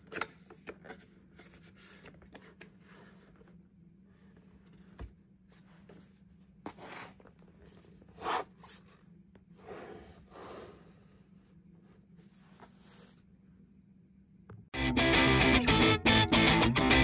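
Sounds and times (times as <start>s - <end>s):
faint steady hum: 0.0s - 14.8s.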